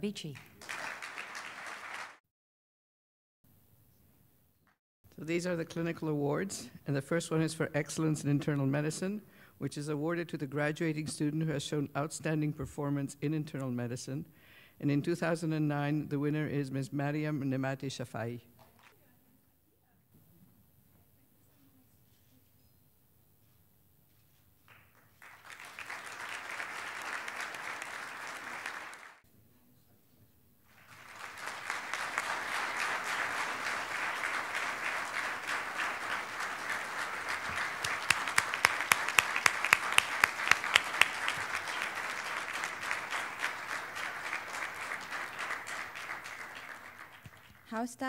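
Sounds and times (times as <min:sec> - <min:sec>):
audience applauding: 0:00.0 - 0:02.2, 0:24.7 - 0:29.2, 0:30.7 - 0:47.8.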